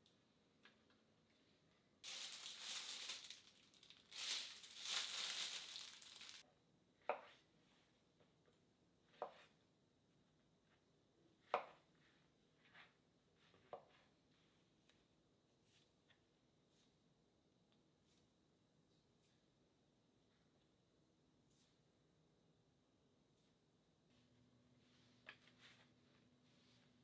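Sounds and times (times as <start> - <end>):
crinkling and tearing: 2.0 - 6.4.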